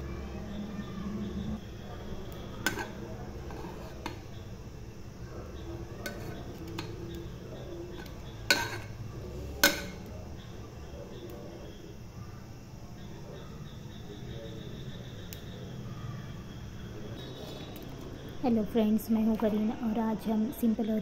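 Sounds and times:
spoon stirring rice in pot: 2.0 - 4.5, 5.6 - 10.1.

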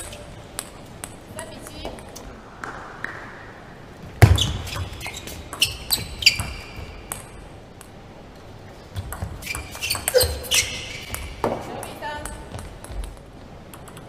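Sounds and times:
table tennis ball hits: 9.0 - 14.0.

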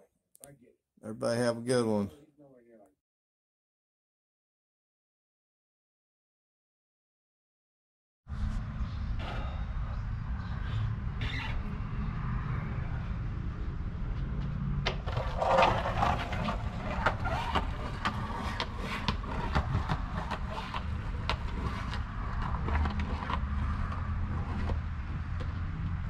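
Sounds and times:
skateboard wheels rumbling: 14.7 - 26.0
skateboard clicks and knocks: 14.8 - 26.0.

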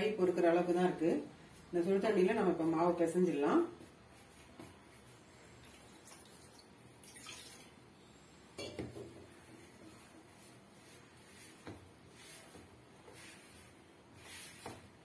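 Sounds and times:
hands kneading dough: 1.6 - 6.2, 9.3 - 15.0.

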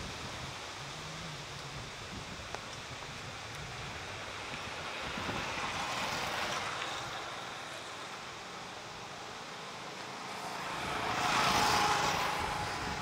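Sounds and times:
outdoor rushing noise: 2.9 - 13.0.

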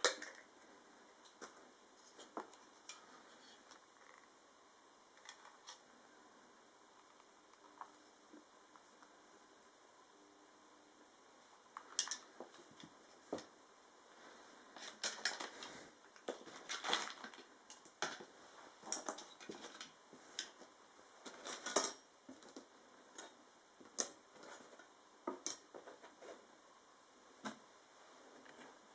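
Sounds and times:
plastic parts clicking and clacking: 0.0 - 0.5, 5.2 - 5.8, 11.8 - 12.9, 14.8 - 18.3, 18.9 - 20.6.

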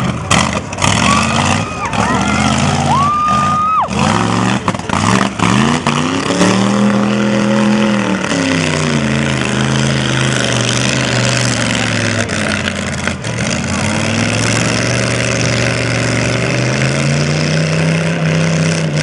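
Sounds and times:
buggy engine revving: 0.0 - 19.0.

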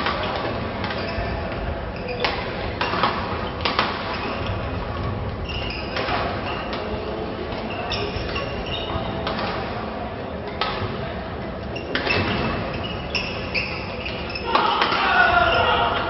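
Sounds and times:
shoes squeaking on wooden floor: 0.2 - 9.3, 11.6 - 14.8
racket hitting shuttlecock: 2.2 - 4.5
voices echoing: 5.4 - 16.0.

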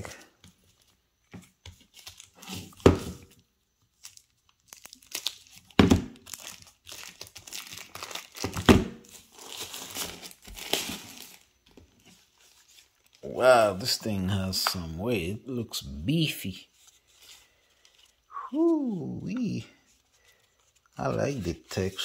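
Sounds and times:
plastic packaging crinkling and tearing: 1.8 - 2.8, 3.9 - 14.0.

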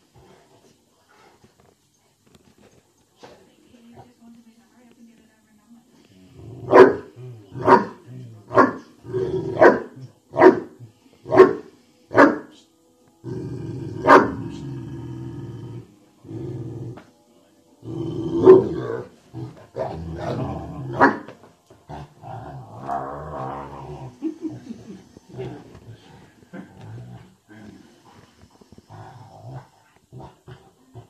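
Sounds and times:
dog growling: 6.3 - 10.0, 13.2 - 17.1, 17.8 - 31.0
dog barking: 6.7 - 8.8, 9.6 - 10.7, 11.3 - 12.5, 14.1 - 14.4, 21.0 - 21.3.

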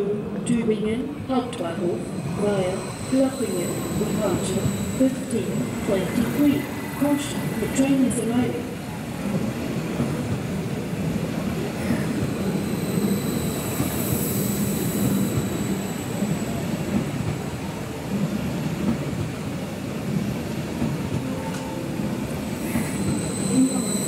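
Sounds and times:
train wheels rumbling on track: 1.2 - 24.0
faint high tone: 21.3 - 24.0.

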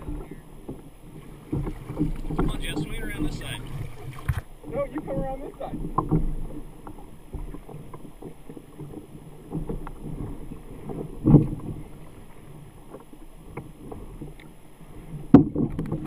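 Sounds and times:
light knocks on hull: 0.0 - 12.1, 15.3 - 16.0
water lapping against hull: 0.0 - 16.0.

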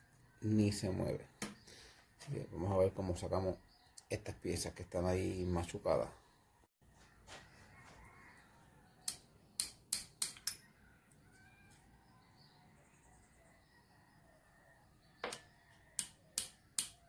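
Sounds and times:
metallic clicks and taps: 9.0 - 10.6, 16.0 - 17.0.

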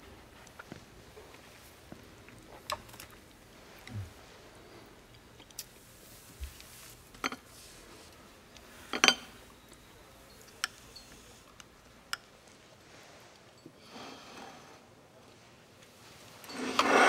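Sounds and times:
soft rustle: 0.1 - 9.6, 10.3 - 13.6, 15.2 - 17.0
dishes and cutlery clinking: 7.2 - 7.5, 8.9 - 11.4, 16.4 - 17.0.

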